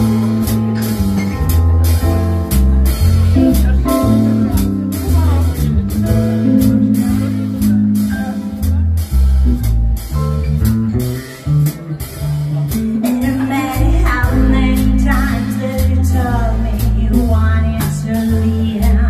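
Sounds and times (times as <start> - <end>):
live band playing rock ballad: 0.0 - 19.0
woman singing: 13.0 - 19.0.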